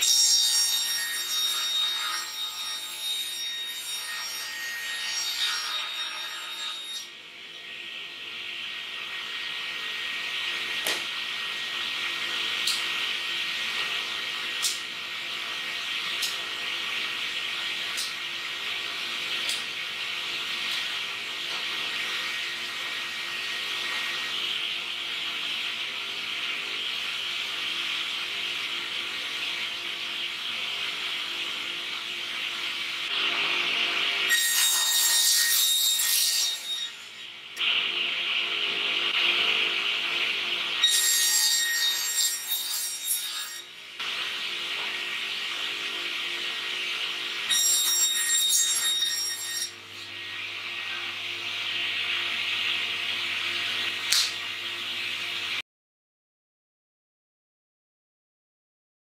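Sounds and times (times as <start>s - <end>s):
saw cutting through plywood: 0.0s - 7.1s, 33.1s - 37.3s, 40.8s - 43.7s
panel saw running: 0.0s - 55.6s.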